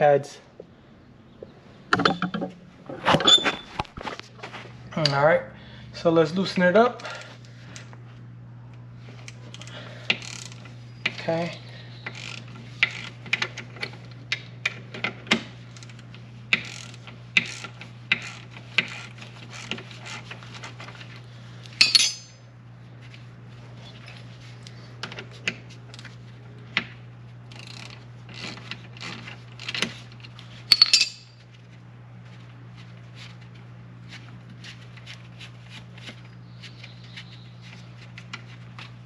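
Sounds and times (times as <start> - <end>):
ratchet and tools clicking: 12.0 - 13.6, 15.8 - 20.4, 27.5 - 31.3
metallic rattles: 30.7 - 31.4.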